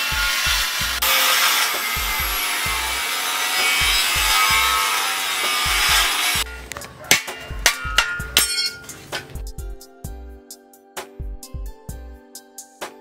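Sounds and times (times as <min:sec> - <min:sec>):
angle grinder cutting steel: 0:00.0 - 0:09.3
hammer knocking on steel plate: 0:07.1 - 0:08.8.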